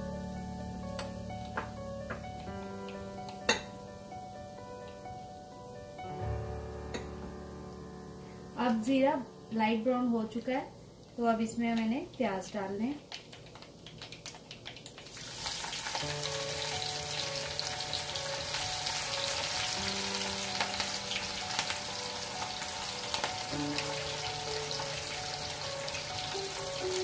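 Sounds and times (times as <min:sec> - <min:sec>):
soft background music: 0:00.0 - 0:13.1, 0:15.0 - 0:27.0
onions sizzling in hot oil: 0:11.2 - 0:27.0.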